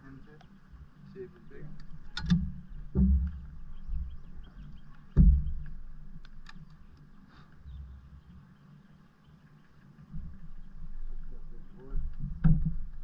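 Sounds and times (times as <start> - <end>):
faint rapid bird chirps: 0.0 - 5.7, 6.5 - 12.1
loud thump on boat deck: 2.9 - 3.4, 5.1 - 5.6.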